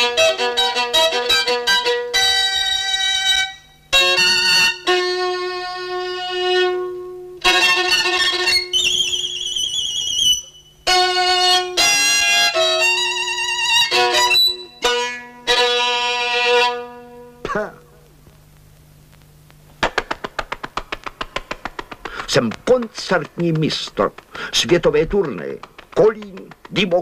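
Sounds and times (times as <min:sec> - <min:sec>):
bowed violin: 0:00.0 - 0:17.1.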